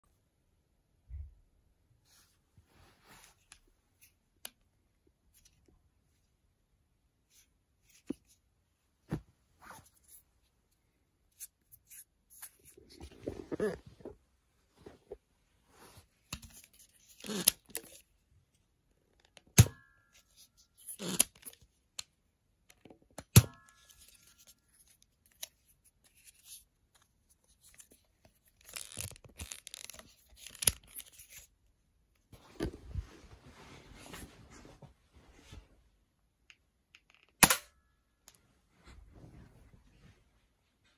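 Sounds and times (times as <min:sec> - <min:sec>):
plastic parts scraping and clicking: 0:16.3 - 0:18.0, 0:25.2 - 0:31.5
toy gun snapping: 0:37.4 - 0:37.7.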